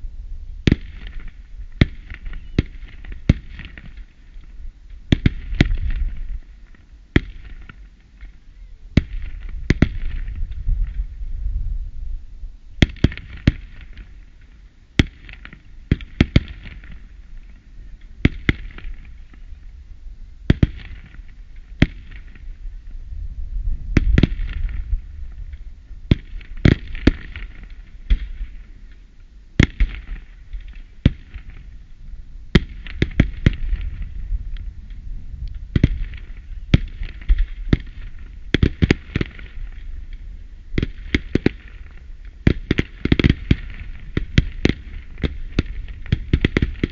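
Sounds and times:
firework crackling: 12.8s - 17.6s, 24.0s - 28.9s, 29.6s - 46.9s.

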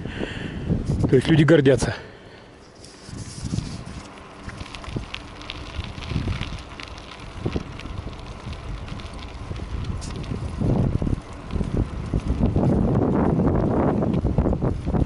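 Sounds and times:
wind buffeting microphone: 0.0s - 1.9s, 3.0s - 15.0s
light clicks and crackles: 2.6s - 13.0s.

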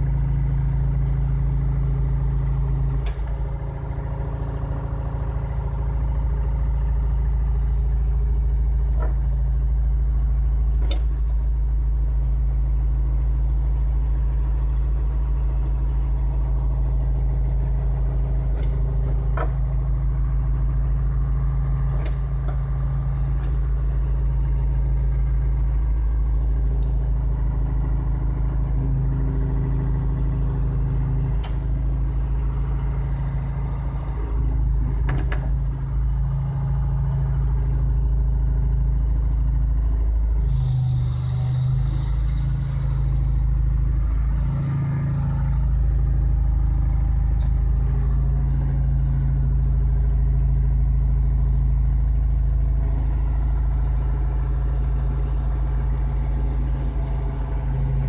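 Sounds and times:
excavator engine running: 0.0s - 58.0s
hiss: 40.3s - 44.4s.

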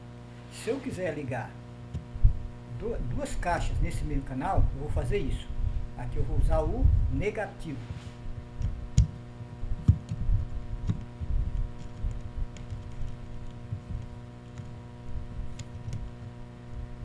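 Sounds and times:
steady electrical hum: 0.0s - 17.0s
small clicks and taps from wires: 8.6s - 14.8s, 15.5s - 16.4s.

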